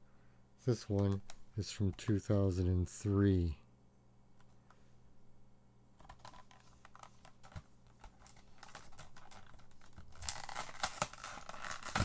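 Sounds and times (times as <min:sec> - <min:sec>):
plastic blister pack crackling: 0:06.0 - 0:12.0.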